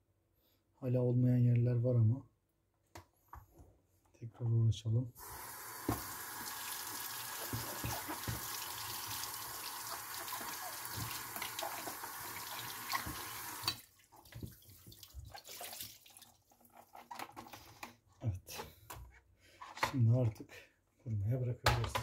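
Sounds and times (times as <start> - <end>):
tap water running into sink: 5.2 - 16.3
water drips: 5.9 - 16.4.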